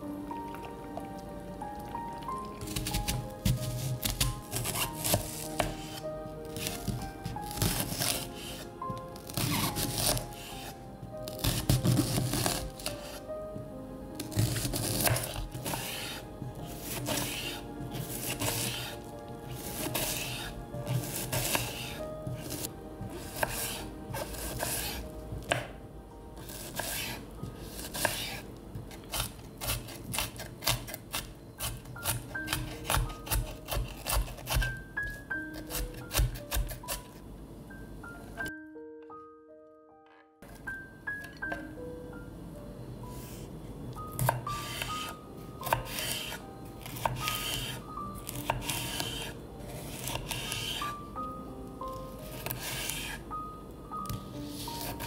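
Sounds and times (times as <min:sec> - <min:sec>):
light plucked background music: 0:00.0 - 0:55.0
knife chopping on wooden board: 0:02.7 - 0:06.0, 0:14.3 - 0:16.2, 0:16.8 - 0:19.0, 0:19.6 - 0:25.8, 0:26.5 - 0:34.7, 0:35.6 - 0:37.0, 0:44.2 - 0:49.3, 0:49.9 - 0:50.8.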